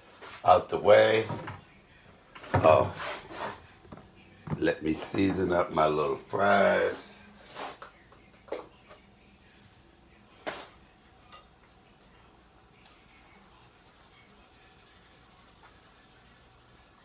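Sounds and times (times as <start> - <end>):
faint rubbing and rustling: 0.0 - 1.7, 2.4 - 5.5, 6.9 - 8.0, 12.7 - 17.0.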